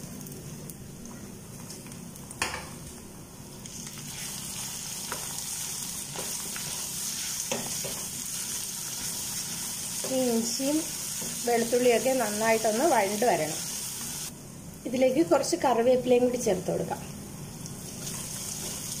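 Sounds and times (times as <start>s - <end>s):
food sizzling in hot oil: 3.6s - 14.3s, 17.8s - 19.0s.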